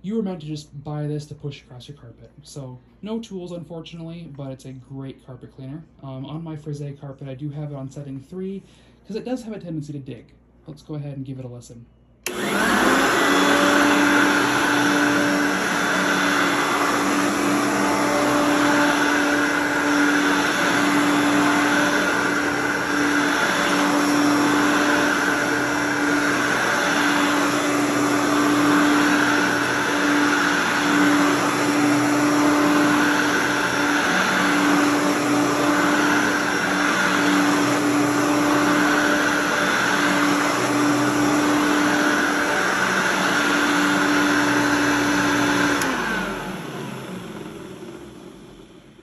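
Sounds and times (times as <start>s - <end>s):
upright vacuum cleaner running: 12.2s - 49.0s.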